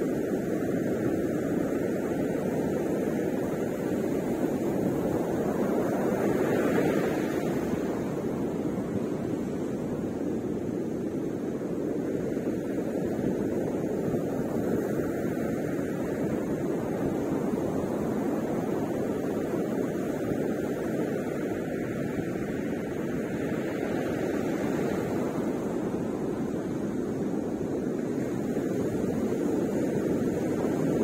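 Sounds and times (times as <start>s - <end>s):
ocean surf rumbling: 0.0s - 31.0s.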